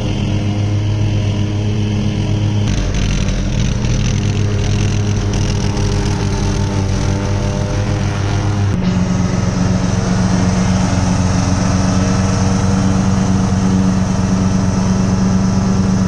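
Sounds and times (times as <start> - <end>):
lawn tractor engine running: 0.0 - 16.0.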